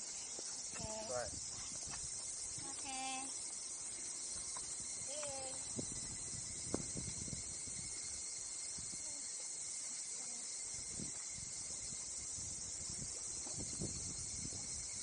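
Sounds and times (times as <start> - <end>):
insect chorus drone: 0.0 - 15.0
microphone bumps and rumble: 5.7 - 7.4.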